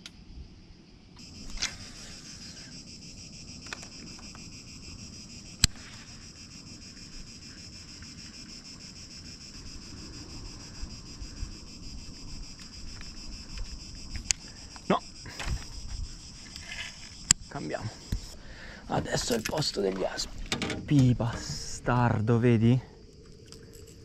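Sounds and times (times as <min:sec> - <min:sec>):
high-pitched insect chorus: 0:00.0 - 0:24.0
wind rumble on microphone: 0:09.2 - 0:18.4.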